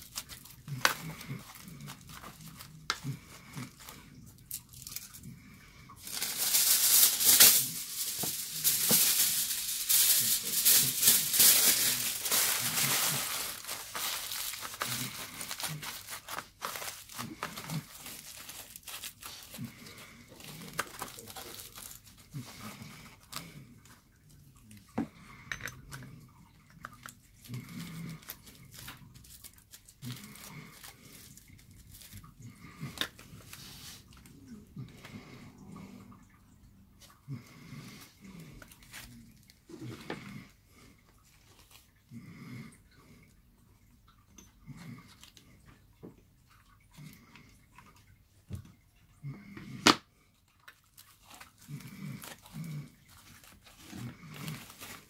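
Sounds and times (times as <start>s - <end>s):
aluminium foil crinkling: 0.0s - 5.3s, 6.0s - 23.6s, 26.9s - 34.2s, 38.4s - 40.3s, 50.5s - 55.0s.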